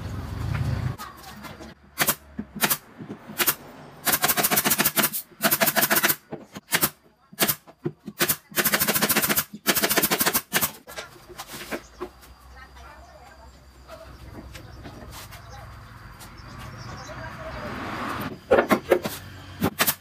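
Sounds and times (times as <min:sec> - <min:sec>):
pneumatic nail gun shots: 0:02.0 - 0:10.8, 0:18.6 - 0:20.0.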